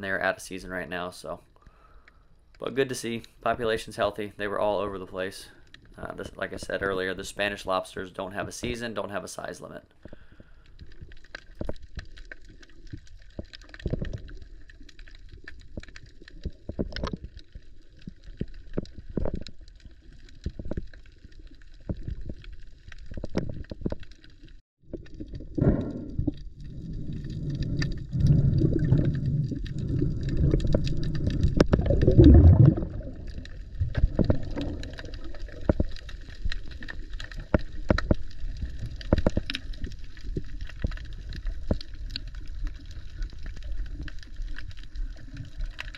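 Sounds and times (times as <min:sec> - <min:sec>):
underwater clicks and crackles: 0:01.2 - 0:45.9
rushing water and bubbles: 0:10.0 - 0:45.9.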